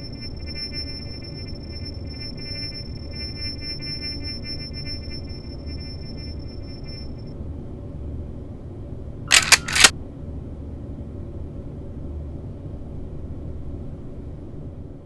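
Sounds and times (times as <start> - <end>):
low rumble: 0.0 - 7.2
high electronic tone: 0.0 - 7.3
sharp mechanical clicks: 9.3 - 9.9.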